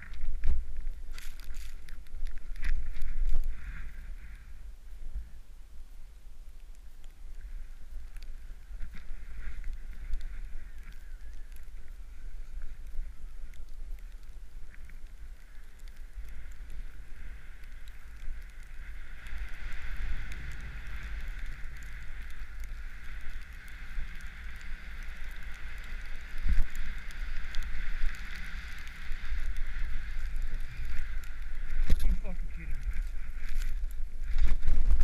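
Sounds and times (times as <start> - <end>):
snowboard sliding through snow: 0.0 - 5.4, 7.4 - 13.4, 16.1 - 35.0.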